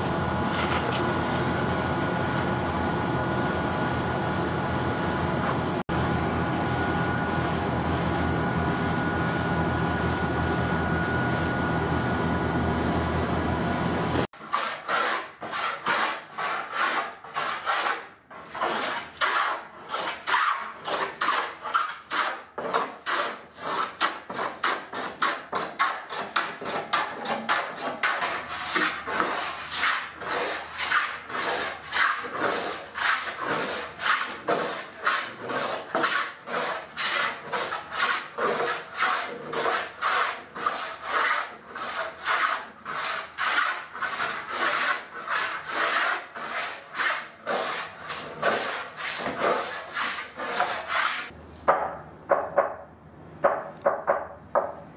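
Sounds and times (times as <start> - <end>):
hand plane scraping wood: 14.3 - 51.4.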